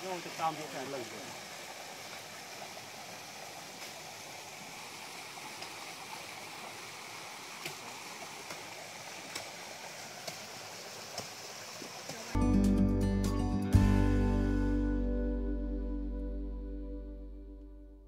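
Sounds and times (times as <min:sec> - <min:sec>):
stream running over rocks: 0:00.0 - 0:12.4.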